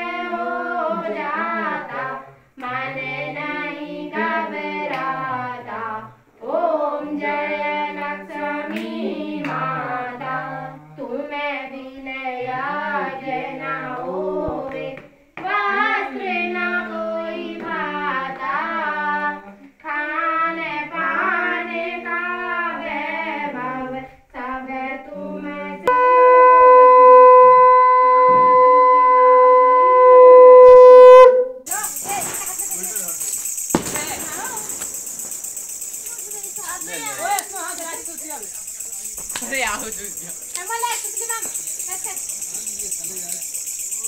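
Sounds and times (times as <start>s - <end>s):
voices singing a hymn: 0.0s - 29.6s, 31.7s - 44.0s
conch shell blown: 25.9s - 31.7s.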